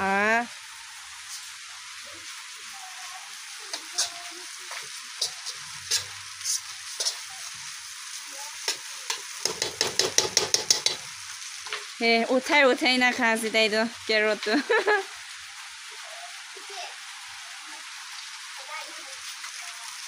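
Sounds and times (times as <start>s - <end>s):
noodles sizzling in a frying pan: 0.0s - 20.0s
spatula scraping a pan: 3.7s - 11.9s
spatula clinking against pan: 8.7s - 11.1s.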